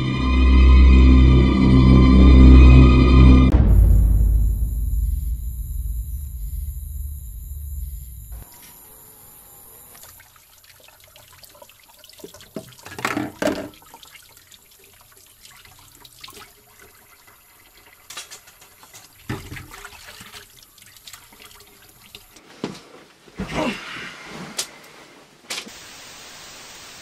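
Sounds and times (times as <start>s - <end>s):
water running and sloshing: 9.8s - 22.4s.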